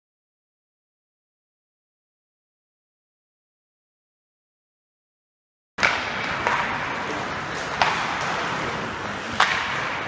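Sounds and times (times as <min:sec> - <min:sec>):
arena noise: 0:05.8 - 0:10.0
hockey sticks and puck clacking: 0:05.8 - 0:10.0.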